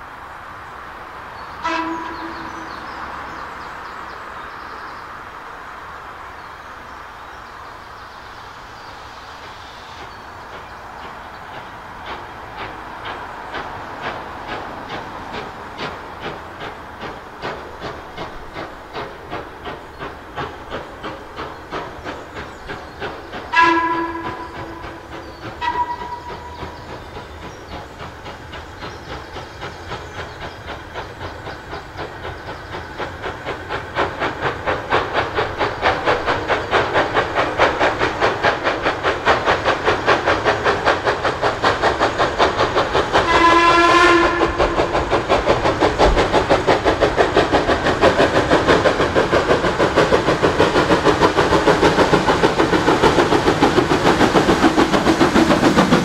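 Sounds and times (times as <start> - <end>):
steam hissing: 0.0 - 56.0
steam whistle blasts: 1.6 - 2.8, 23.5 - 24.8, 25.6 - 26.5, 43.2 - 44.8
locomotive exhaust beats: 8.9 - 56.0.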